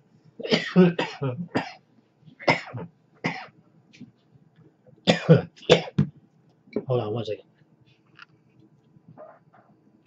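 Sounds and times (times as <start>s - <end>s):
man coughing harshly: 0.4s - 1.8s, 2.4s - 3.5s, 5.1s - 6.0s.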